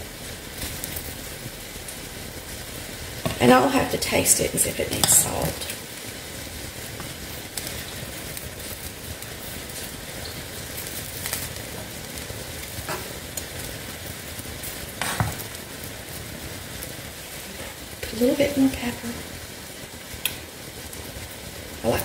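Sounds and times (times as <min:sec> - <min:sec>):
broth bubbling in a pan: 0:00.0 - 0:22.0
metal spoon scraping a pan: 0:03.2 - 0:05.8.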